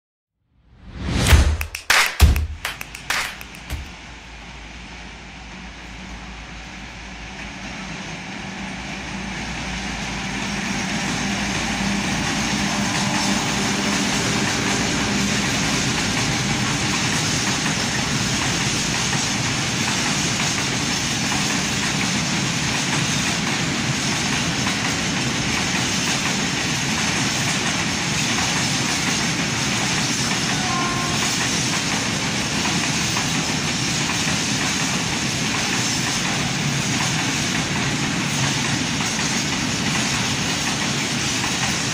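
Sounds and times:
diesel locomotive engine passing: 2.8s - 41.9s
freight wagon wheels rumbling on rail: 3.4s - 41.9s.

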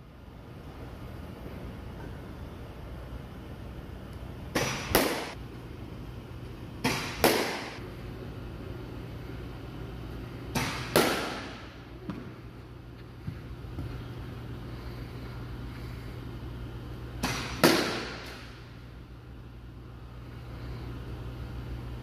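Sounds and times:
low steady hum: 0.0s - 22.0s
bat cracking ball: 4.5s - 5.4s, 6.8s - 7.8s, 10.5s - 12.4s, 17.2s - 18.6s.

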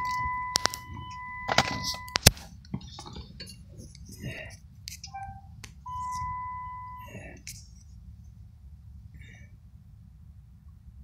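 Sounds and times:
high electronic beep tone: 0.0s - 2.2s, 5.1s - 7.1s
sharp clicks and knocks: 0.0s - 4.1s.

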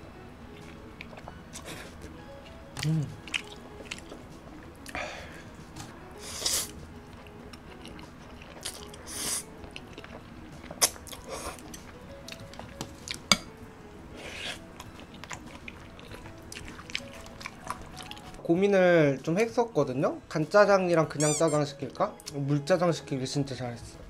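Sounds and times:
soft background music: 0.0s - 24.0s
chewing: 0.6s - 5.0s, 6.4s - 13.3s, 14.2s - 18.4s.

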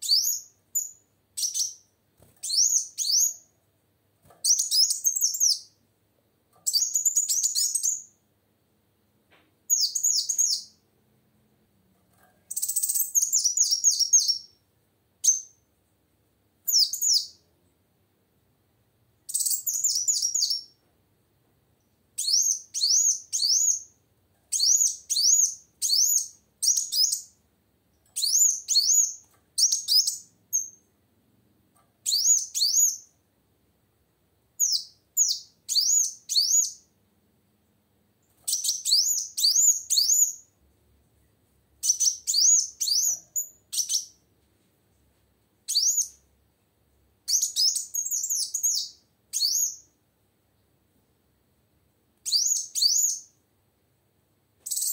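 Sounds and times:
sunbird chirping: 0.0s - 3.5s, 4.4s - 5.8s, 6.6s - 8.2s, 9.7s - 10.8s, 12.5s - 14.6s, 15.2s - 15.7s, 16.7s - 17.4s, 19.2s - 20.8s, 21.8s - 27.4s, 28.2s - 30.9s, 34.6s - 36.9s, 38.4s - 40.6s, 41.8s - 44.2s, 45.6s - 46.2s, 47.3s - 50.0s, 52.2s - 53.4s, 54.6s - 54.9s.

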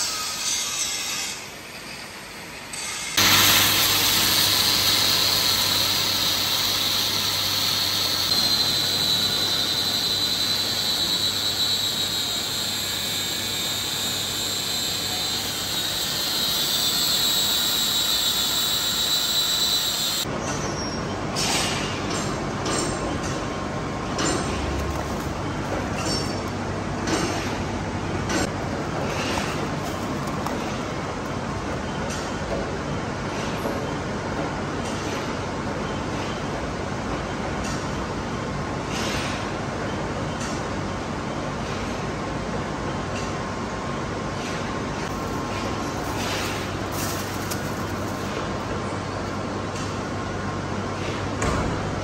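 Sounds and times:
lathe cutting steel squeal: 2.8s - 21.0s
machine humming: 3.2s - 20.3s.

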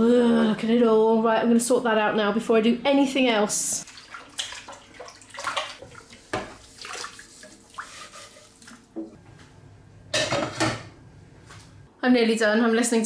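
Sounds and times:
water rushing from tap: 3.8s - 8.9s
water sloshing and splashing: 3.8s - 9.2s.

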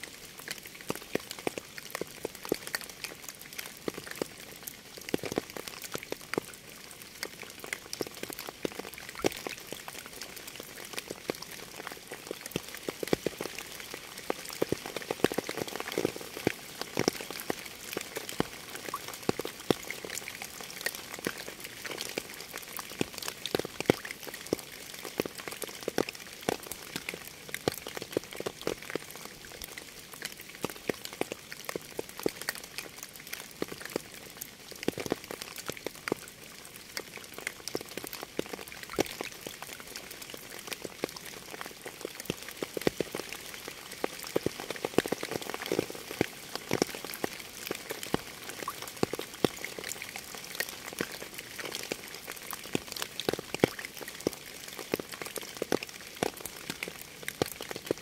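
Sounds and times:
raindrops striking nearby: 0.0s - 58.0s
steady rain hiss: 0.0s - 58.0s.

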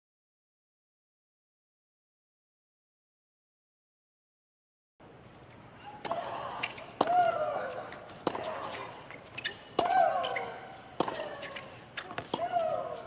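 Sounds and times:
rackets hitting tennis ball: 5.9s - 13.0s.

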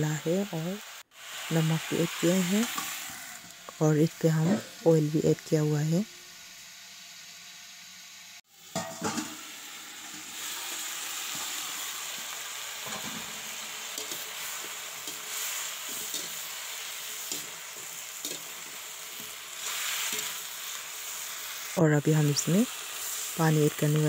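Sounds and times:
vegetables sizzling in oil: 0.0s - 24.0s.

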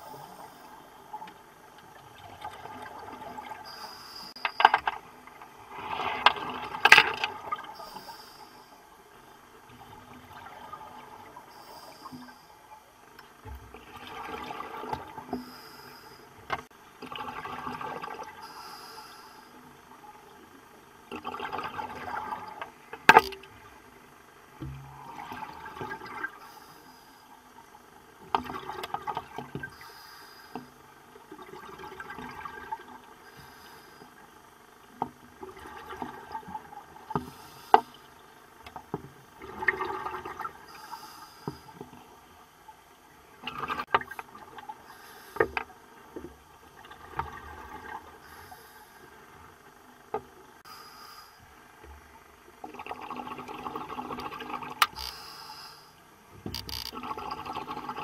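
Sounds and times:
regulator bubbles gurgling: 9.2s - 15.6s, 16.9s - 18.5s, 19.7s - 26.5s, 27.6s - 29.8s, 31.0s - 45.0s, 45.6s - 48.4s, 51.5s - 55.1s, 56.1s - 58.0s.

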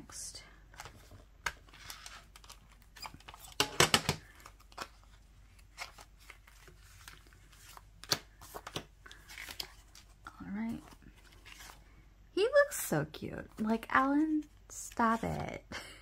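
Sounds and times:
paper rustling: 0.8s - 3.6s, 4.2s - 11.8s.

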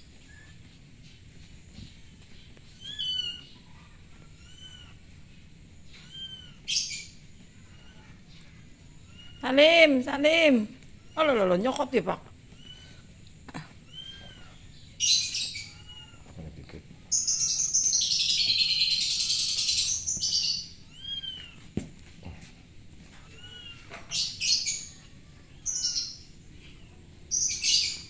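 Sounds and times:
faint high bird calls: 0.0s - 0.7s, 1.7s - 5.1s, 5.8s - 9.9s, 12.5s - 13.1s, 13.8s - 21.6s, 23.3s - 28.0s
small birds chirping: 0.0s - 21.6s, 23.2s - 28.0s.

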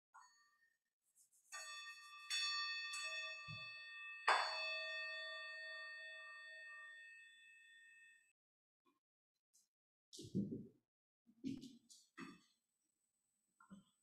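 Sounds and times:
bell ringing: 1.6s - 8.0s.

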